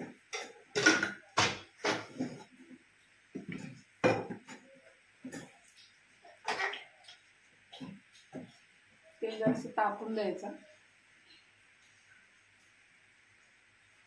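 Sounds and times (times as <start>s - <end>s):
pots and utensils clinking: 0.0s - 2.5s, 3.4s - 5.6s.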